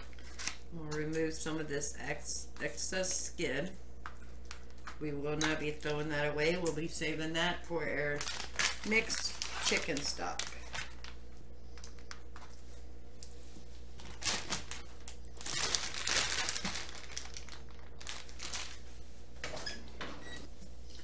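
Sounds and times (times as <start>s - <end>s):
plastic bag crinkling: 8.1s - 12.3s, 14.0s - 19.0s.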